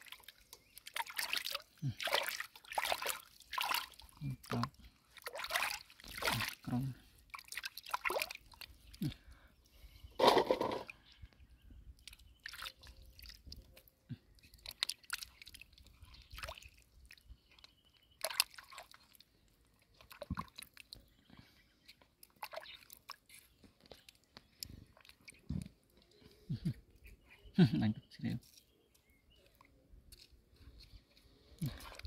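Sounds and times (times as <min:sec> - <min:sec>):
water dripping: 0:00.0 - 0:09.2
wet mud squelches: 0:00.0 - 0:09.5, 0:11.9 - 0:27.3, 0:28.4 - 0:32.0.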